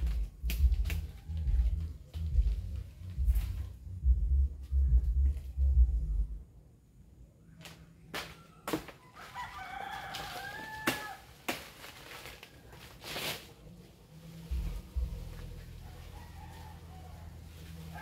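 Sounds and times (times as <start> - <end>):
strong low rumble: 0.0 - 6.4, 14.5 - 16.2
rooster crowing: 9.0 - 11.3, 15.8 - 18.0.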